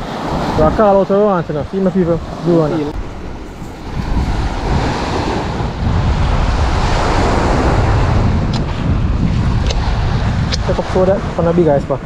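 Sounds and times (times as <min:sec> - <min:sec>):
small waves breaking on shore: 0:00.0 - 0:11.6
wind buffeting microphone: 0:00.0 - 0:12.0.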